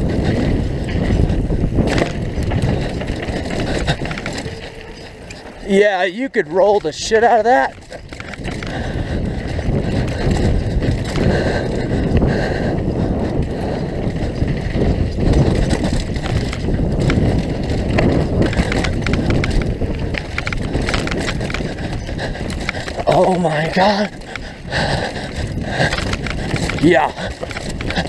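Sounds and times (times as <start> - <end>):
bike rattling and clattering: 0.0 - 28.0
tyres rumbling on dirt: 0.0 - 28.0
wind on microphone: 0.0 - 28.0.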